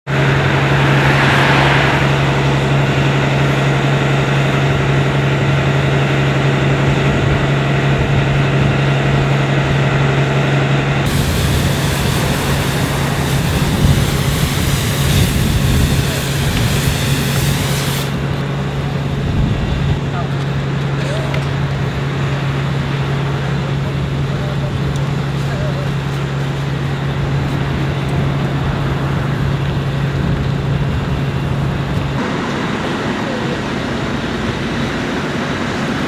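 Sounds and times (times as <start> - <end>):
diesel engine running: 0.1 - 36.0
hose jet spraying water: 11.1 - 18.6.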